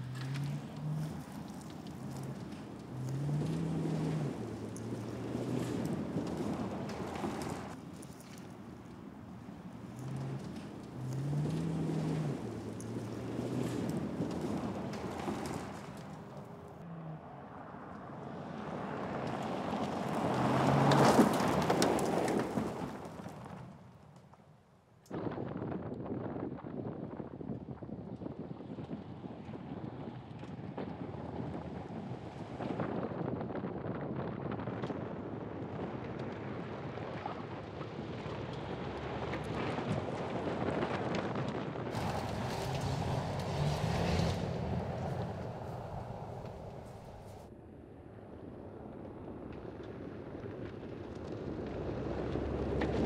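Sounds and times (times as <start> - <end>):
tyres rushing on gravel: 0.0 - 16.8, 18.6 - 23.9, 41.9 - 47.5
wind buffeting microphone: 0.0 - 16.8, 25.1 - 47.5.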